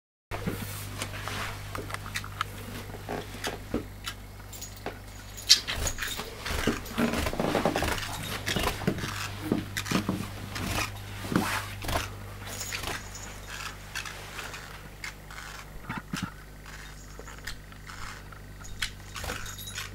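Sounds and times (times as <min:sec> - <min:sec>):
steady low hum: 0:00.3 - 0:19.9
bird buzzy chatter: 0:11.8 - 0:19.9.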